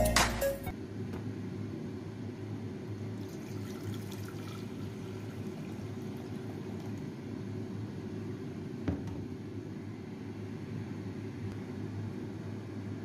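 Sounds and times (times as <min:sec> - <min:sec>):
water pouring into metal pot: 0:03.2 - 0:07.1.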